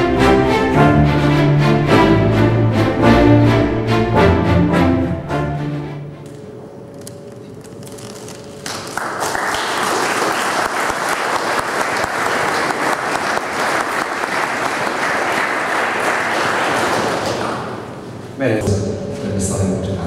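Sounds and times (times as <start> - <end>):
audience applauding: 7.7 - 18.0.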